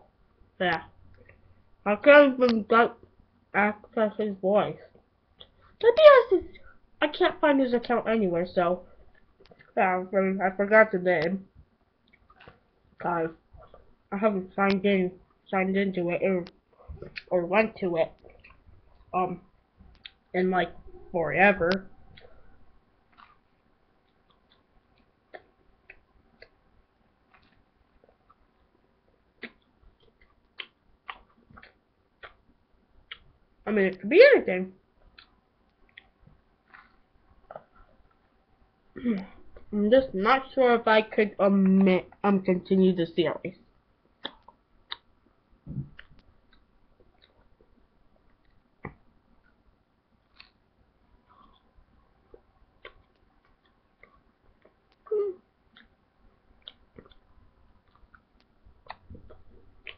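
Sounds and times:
soft low thump: 0:45.7 - 0:46.0
mouth noises near microphone: 0:54.0 - 0:55.9.

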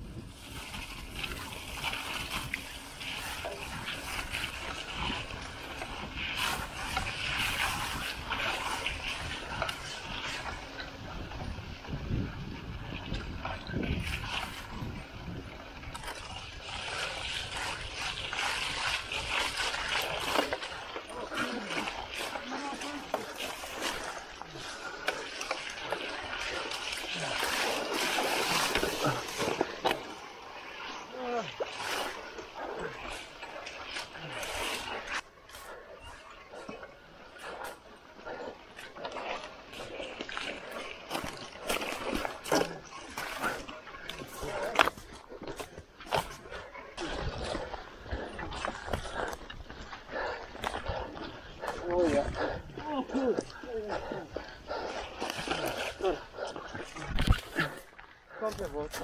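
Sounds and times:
bike tyres rolling through mud: 0:00.0 - 0:59.0
mud spatter and splashing: 0:00.3 - 0:59.0.

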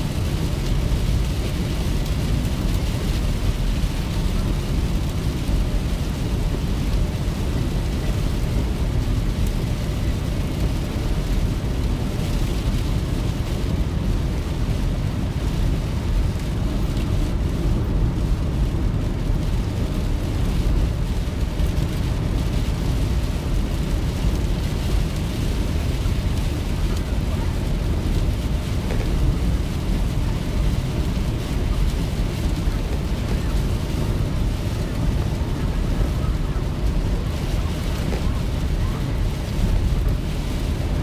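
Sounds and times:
car engine rumble: 0:00.0 - 0:41.0
rain hissing on car: 0:00.0 - 0:41.0
tyres on wet road: 0:00.0 - 0:41.0.

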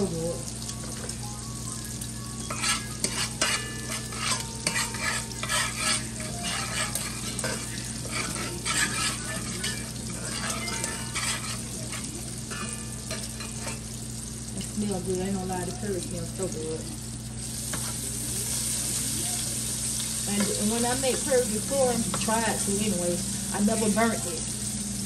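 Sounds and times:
oil sizzling: 0:00.0 - 0:25.0
utensil scraping a pot: 0:02.5 - 0:14.0.

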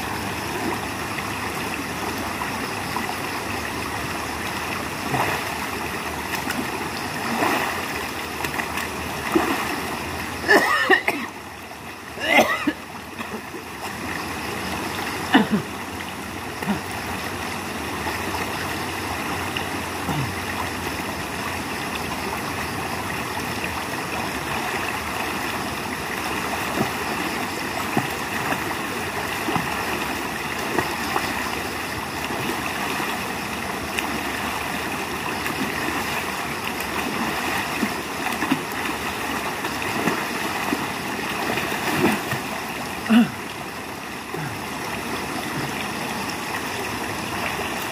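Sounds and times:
shallow river over stones: 0:00.0 - 0:47.9
person splashing in water: 0:09.2 - 0:09.9, 0:36.8 - 0:43.3.

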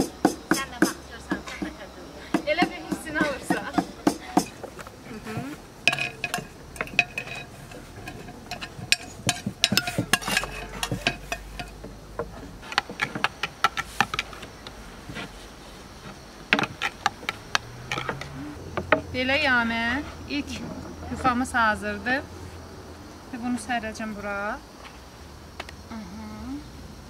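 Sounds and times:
metal spoon scraping glass jar: 0:05.3 - 0:11.8
rolling pin knocking on board: 0:08.8 - 0:14.3.

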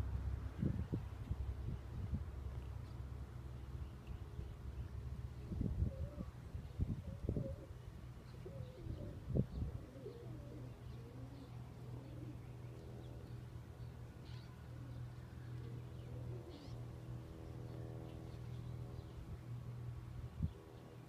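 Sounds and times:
steady low hum: 0:00.0 - 0:21.0
small birds chirping: 0:02.6 - 0:19.6
pigeons cooing: 0:05.6 - 0:13.4, 0:14.2 - 0:17.0.

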